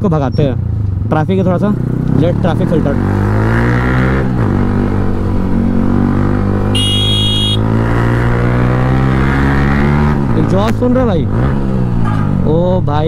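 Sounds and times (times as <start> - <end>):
motorcycle engine accelerating: 1.8 - 10.4
high-pitched beep: 6.8 - 7.6.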